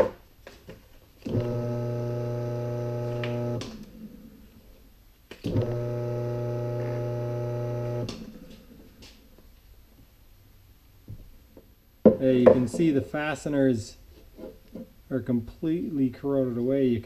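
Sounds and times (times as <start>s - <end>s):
electric pump motor humming: 1.2s - 4.0s, 5.4s - 8.7s.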